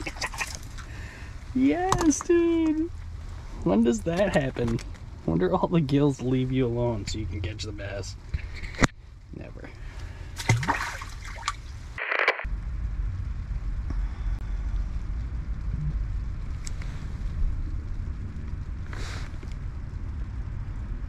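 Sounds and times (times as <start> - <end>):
short burst of noise: 12.0 - 12.5.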